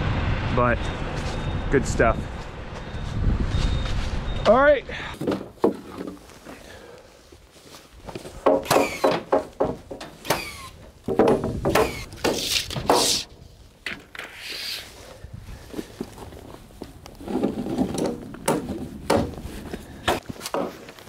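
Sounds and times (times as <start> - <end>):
lumber knocking and clattering: 5.2 - 6.2, 8.3 - 13.2, 17.3 - 19.4, 20.1 - 20.8.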